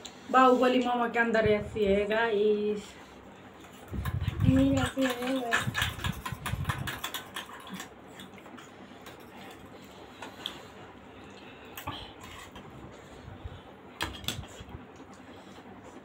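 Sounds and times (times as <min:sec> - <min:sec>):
metal spoons clinking on steel bowls: 0:04.2 - 0:07.9.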